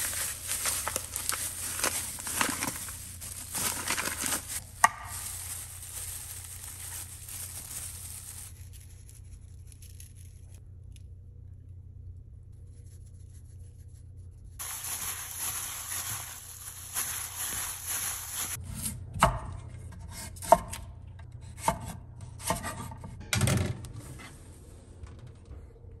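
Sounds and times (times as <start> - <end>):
plastic crinkling and rustling: 0.0 - 10.6, 14.6 - 18.6
low steady hum: 0.0 - 26.0.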